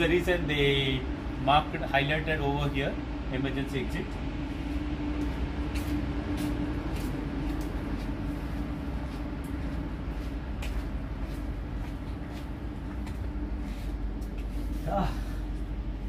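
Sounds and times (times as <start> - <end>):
ship machinery hum: 0.0 - 16.0
footsteps on steel deck: 4.1 - 16.0.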